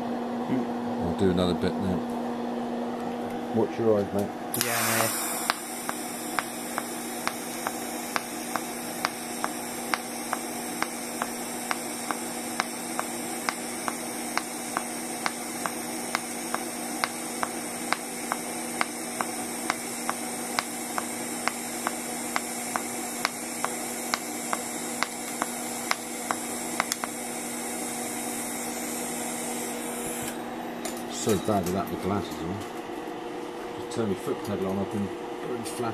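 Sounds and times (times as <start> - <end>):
welding arc buzzing: 4.5 - 30.5
sharp ticks of pulsing arc: 4.6 - 27.4.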